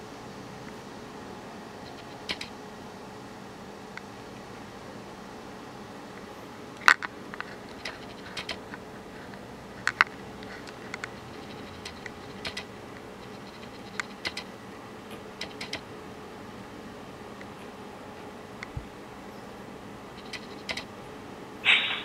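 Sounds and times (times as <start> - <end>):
cat chattering clicks: 1.8 - 2.5, 7.7 - 8.7, 11.0 - 14.5, 15.4 - 15.9, 20.2 - 20.9, 21.6 - 22.0.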